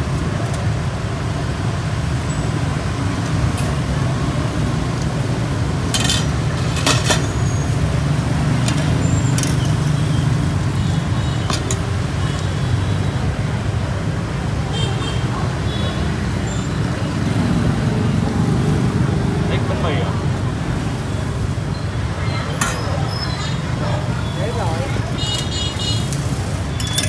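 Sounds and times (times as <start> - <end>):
street traffic rumble: 0.0 - 27.0
metal tongs clicking on bowl: 26.8 - 27.0.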